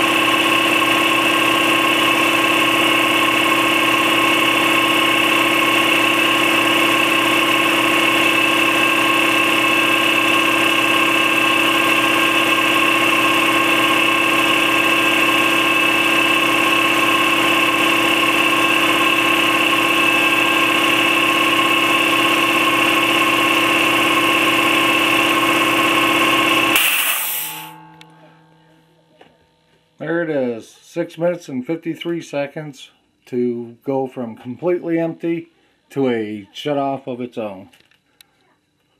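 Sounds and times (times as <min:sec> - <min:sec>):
air compressor running: 0:00.0 - 0:29.0.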